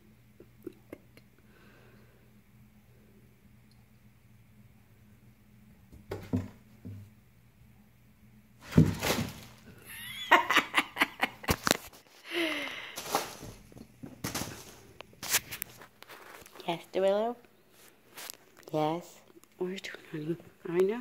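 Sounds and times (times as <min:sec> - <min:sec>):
cats thumping cardboard box: 0:06.0 - 0:07.1, 0:08.6 - 0:09.6, 0:13.0 - 0:14.8
person laughing: 0:09.8 - 0:11.7.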